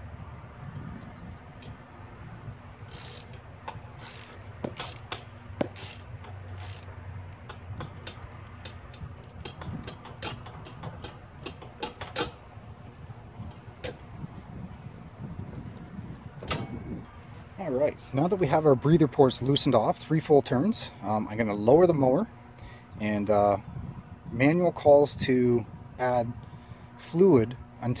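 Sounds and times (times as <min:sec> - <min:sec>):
socket ratchet clicking: 0:02.8 - 0:12.4, 0:13.0 - 0:14.1.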